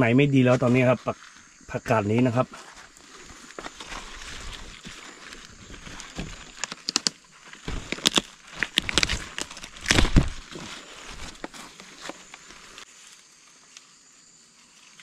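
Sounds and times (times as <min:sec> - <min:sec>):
leaves rustling and snapping: 0:02.7 - 0:13.9.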